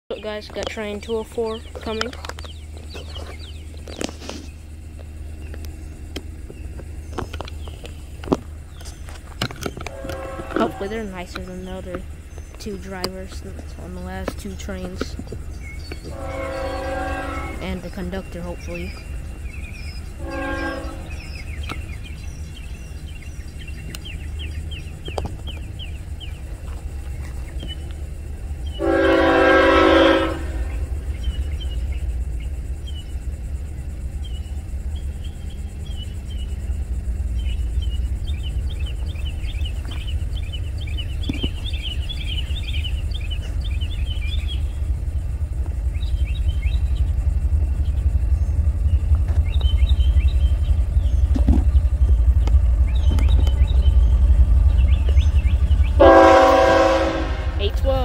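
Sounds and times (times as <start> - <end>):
low rumble: 0.1 - 58.0
locomotive air horn blast: 9.8 - 11.2, 16.0 - 17.9, 20.2 - 21.3, 28.8 - 30.9, 55.9 - 57.7.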